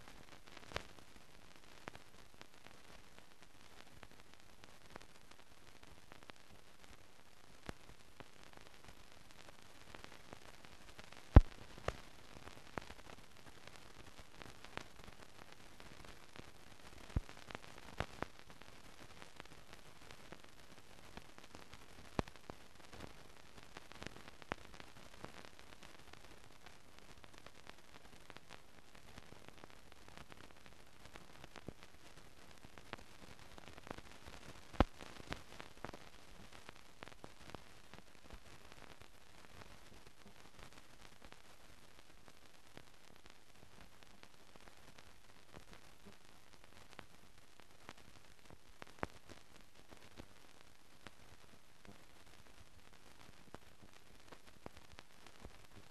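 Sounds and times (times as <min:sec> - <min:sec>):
faint clicks and crackles: 0:00.0 - 0:55.9
film soundtrack hiss: 0:00.0 - 0:55.9
clicks and pops: 0:11.3 - 0:12.0, 0:34.4 - 0:36.0.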